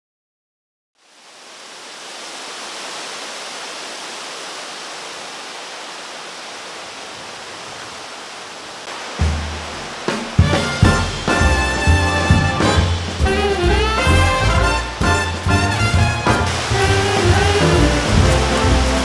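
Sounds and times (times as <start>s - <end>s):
stream water rushing: 1.0s - 19.0s
music with deep bass: 10.8s - 19.0s.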